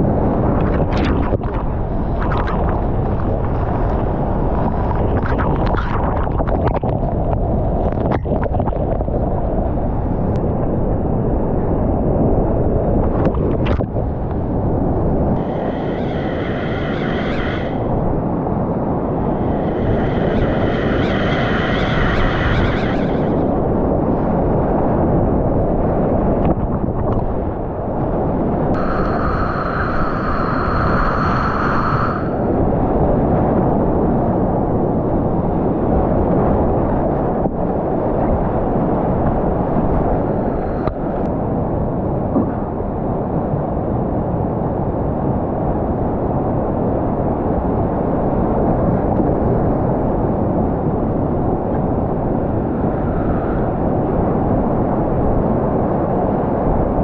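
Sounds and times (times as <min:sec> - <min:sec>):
steady high tone: 0:15.4 - 0:18.2, 0:19.1 - 0:23.5, 0:28.8 - 0:32.6.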